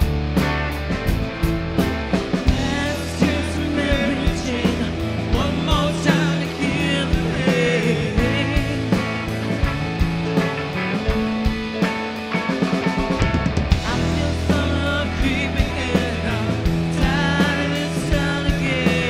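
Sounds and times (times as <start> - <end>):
rock band playing: 0.0 - 19.0
vocals: 2.4 - 11.5, 13.7 - 19.0.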